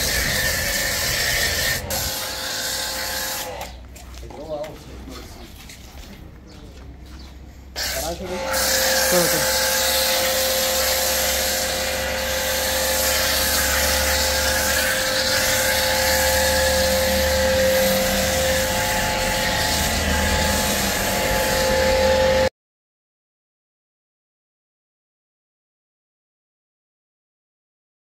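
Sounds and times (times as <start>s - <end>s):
pressure washer whine: 0.0s - 3.9s, 7.7s - 22.5s
water jet hissing on car: 7.8s - 21.8s.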